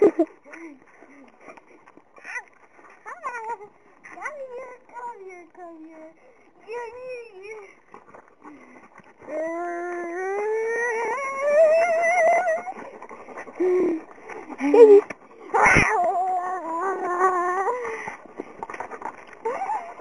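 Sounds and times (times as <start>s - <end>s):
dog howling and whining: 9.2s - 20.0s.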